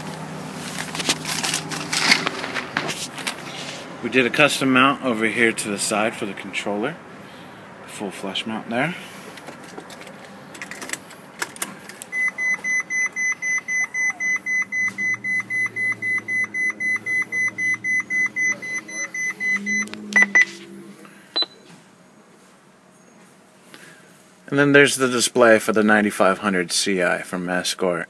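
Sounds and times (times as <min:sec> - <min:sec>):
rapid electronic beeping: 0:12.2 - 0:20.5.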